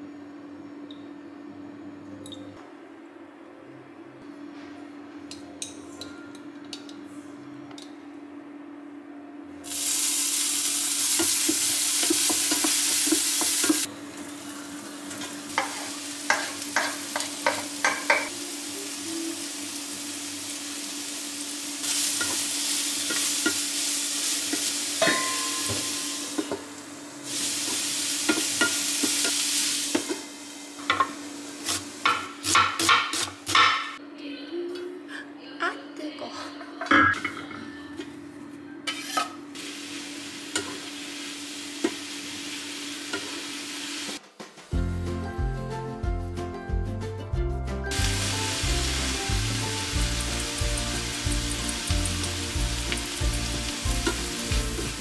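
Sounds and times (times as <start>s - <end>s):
vegetables sizzling in a frying pan: 9.6s - 33.7s, 38.9s - 44.2s, 47.9s - 55.0s.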